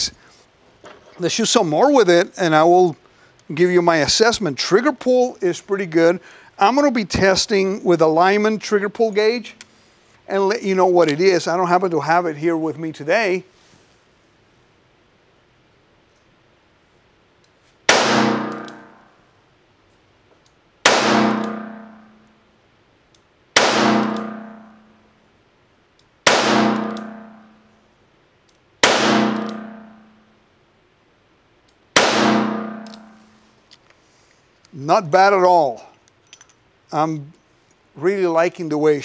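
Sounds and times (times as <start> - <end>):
revolver gunshots echoing indoors: 17.9 - 19.2, 20.8 - 22.3, 23.6 - 25.0, 26.2 - 27.7, 28.8 - 30.3, 32.0 - 33.4.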